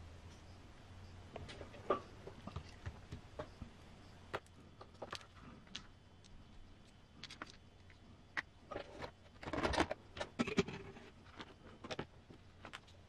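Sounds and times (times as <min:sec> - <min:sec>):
plastic parts scraping: 0:08.4 - 0:13.0.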